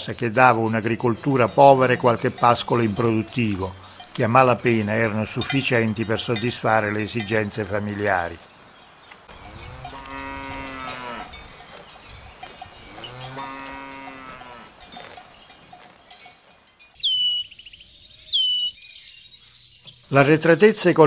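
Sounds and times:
cowbells clanking: 0:00.0 - 0:17.0
cattle mooing: 0:09.3 - 0:15.2
bird whistling call: 0:17.0 - 0:20.1.

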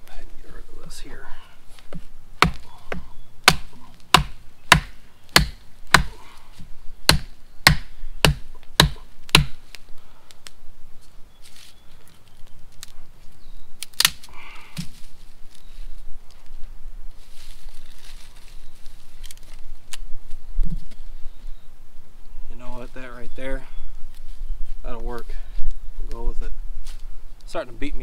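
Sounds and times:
blade chopping wood: 0:02.4 - 0:06.2, 0:07.1 - 0:09.6.

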